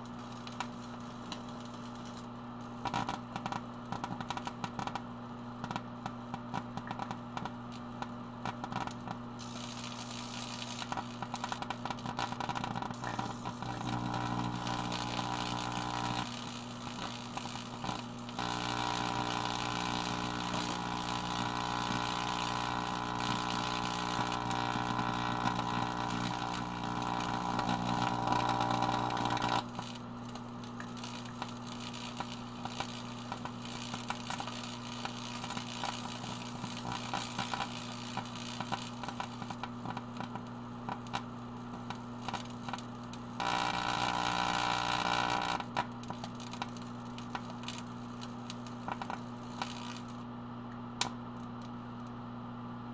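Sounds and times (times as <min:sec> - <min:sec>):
sparking crackles: 0:00.0 - 0:52.1
microwave oven humming: 0:00.0 - 0:52.9
harsh buzz: 0:09.4 - 0:40.2, 0:41.7 - 0:50.3.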